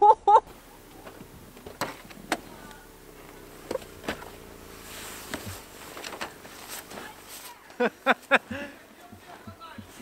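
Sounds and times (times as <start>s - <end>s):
car engine running faintly: 0.3s - 10.0s
car door unlatching and opening: 0.5s - 7.4s.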